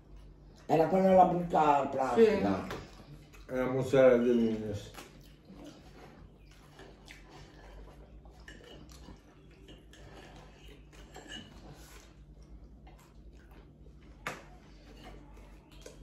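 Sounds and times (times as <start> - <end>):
chewing: 0.0 - 16.0
cutlery scraping on plates: 8.3 - 12.1.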